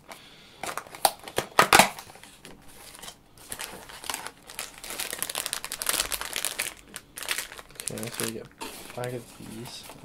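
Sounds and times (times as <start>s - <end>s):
plastic snack bag crinkling: 2.8s - 10.0s.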